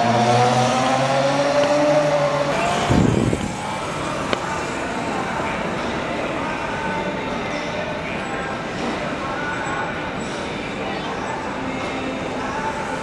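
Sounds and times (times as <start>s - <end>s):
rough rushing noise: 0.0s - 5.9s.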